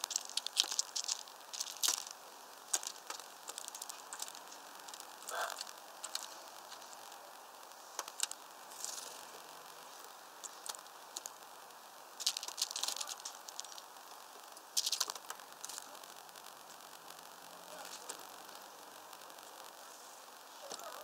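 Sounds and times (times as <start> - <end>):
birds clicking and rustling on feeder: 0.0 - 16.1.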